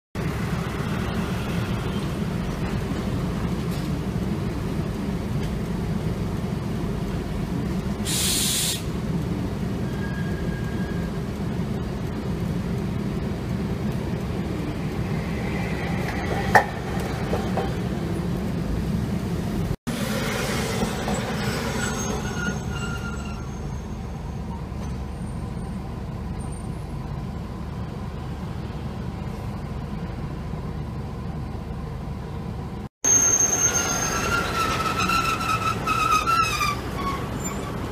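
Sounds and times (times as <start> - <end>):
road traffic: 0.2 - 37.9
standing tram humming: 0.2 - 37.9
tram rumbling: 0.2 - 37.9
brief hiss: 8.1 - 8.9.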